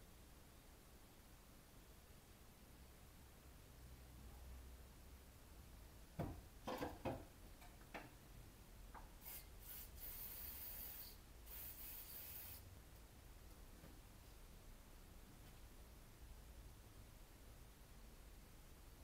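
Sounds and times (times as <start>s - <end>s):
aerosol can spraying: 9.2s - 12.7s.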